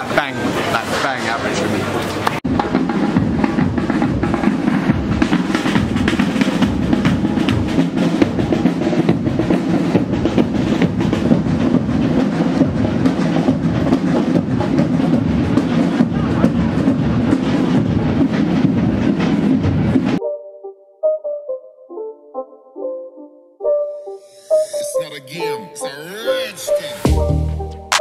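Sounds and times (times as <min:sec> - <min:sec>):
military marching band playing: 0:02.4 - 0:20.2
snare and bass drums beating: 0:02.4 - 0:20.2.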